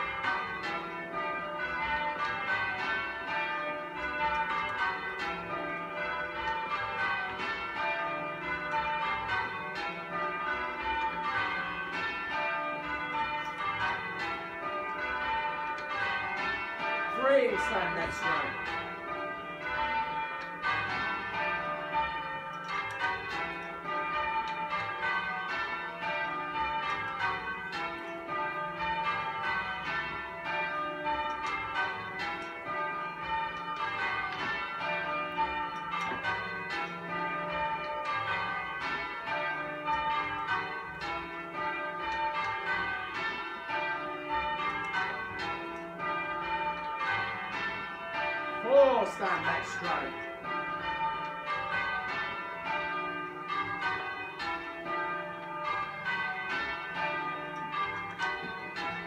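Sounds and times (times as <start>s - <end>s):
church bells ringing: 0.0s - 59.0s.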